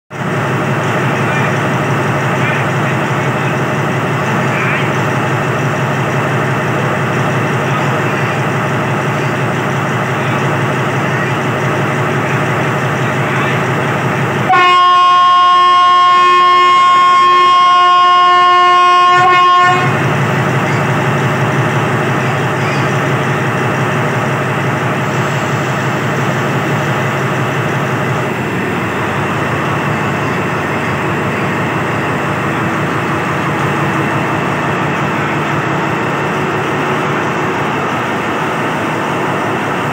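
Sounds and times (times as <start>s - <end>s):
diesel locomotive engine running: 0.1s - 39.9s
locomotive horn blast: 14.4s - 20.2s.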